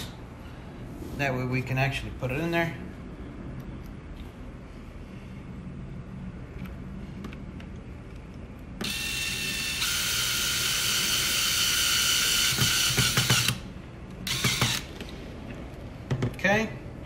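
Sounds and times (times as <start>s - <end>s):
cordless drill whining: 8.8s - 13.6s, 14.2s - 15.0s.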